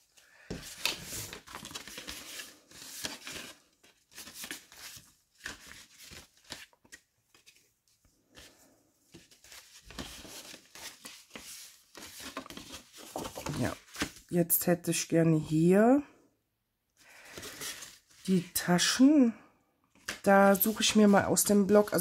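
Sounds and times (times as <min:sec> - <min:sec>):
paper rustling and sliding: 0:00.0 - 0:14.2.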